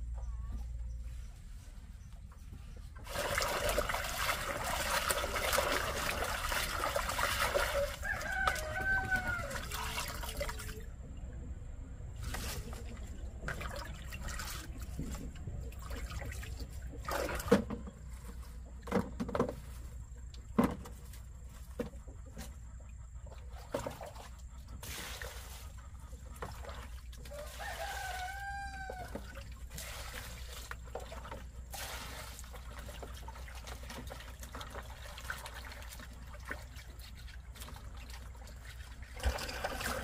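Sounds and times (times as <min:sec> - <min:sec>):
rooster crowing: 0:07.7 - 0:10.0, 0:27.3 - 0:29.4.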